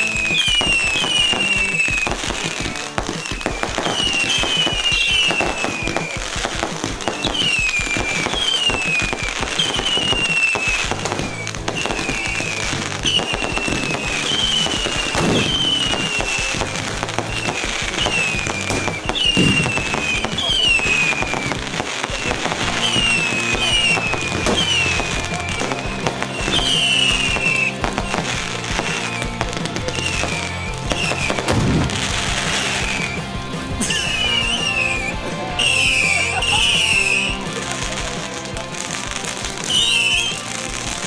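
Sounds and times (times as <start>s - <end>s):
falling fireworks whistles: 0.0s - 41.0s
fireworks pops and crackles: 0.0s - 41.0s
loud firework bang: 0.4s - 33.2s.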